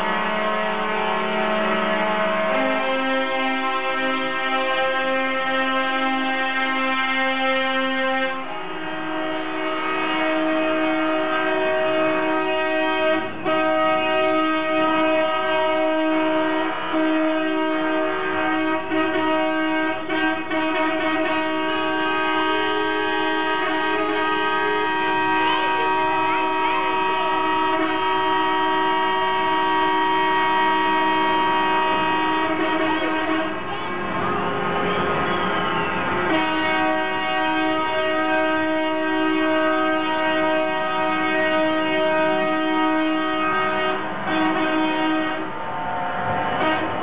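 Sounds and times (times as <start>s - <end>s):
truck air horns chord: 0.0s - 47.0s.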